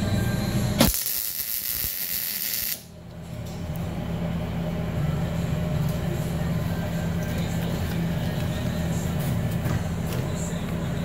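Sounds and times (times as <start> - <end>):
steady low hum: 0.0 - 11.0
welder arc crackling: 0.8 - 2.9.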